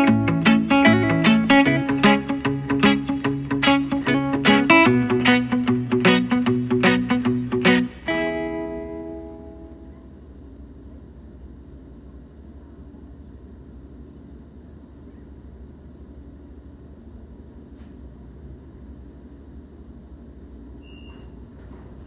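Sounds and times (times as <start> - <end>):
strummed acoustic guitar: 0.0 - 9.8
electric train rumbling: 0.0 - 13.6.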